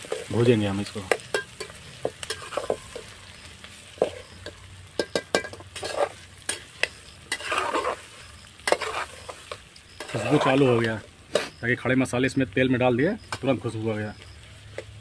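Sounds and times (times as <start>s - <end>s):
onions sizzling in oil: 0.0s - 15.0s
spoon scraping and knocking pot: 1.1s - 3.1s, 4.0s - 8.0s, 8.6s - 10.6s.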